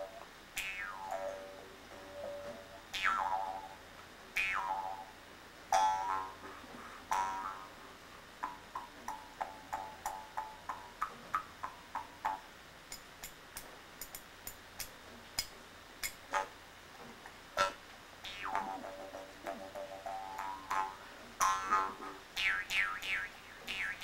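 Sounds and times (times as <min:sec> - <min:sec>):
mouth harp twanging: 0:00.0 - 0:03.8, 0:04.4 - 0:05.1, 0:05.7 - 0:06.5, 0:07.1 - 0:07.7, 0:17.6 - 0:24.0.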